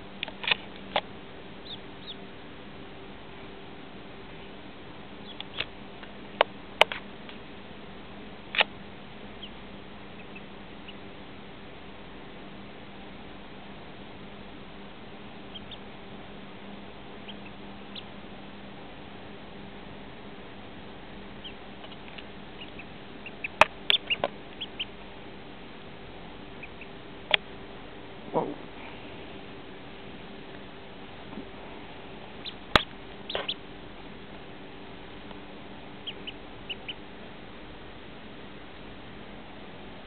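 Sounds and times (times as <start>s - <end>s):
duckling peeping: 1.6s - 2.3s, 5.2s - 5.7s, 9.3s - 11.2s, 15.1s - 16.0s, 17.2s - 18.2s, 21.4s - 25.1s, 26.4s - 27.4s, 32.3s - 33.7s, 36.0s - 37.1s.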